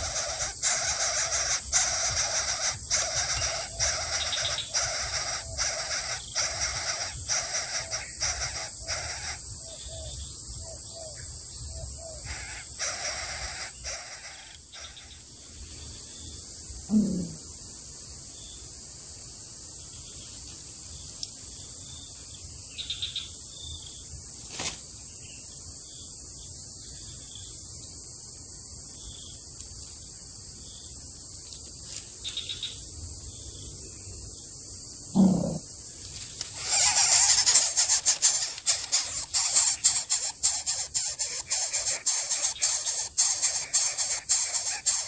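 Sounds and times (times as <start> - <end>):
steady low hiss: 27.7 - 45.0
dry nest material rattling: 36.5 - 45.0.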